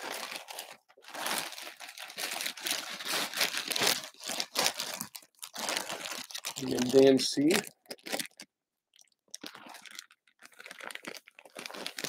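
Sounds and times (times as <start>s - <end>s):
plastic bag crinkling: 0.0s - 8.5s, 9.3s - 12.0s.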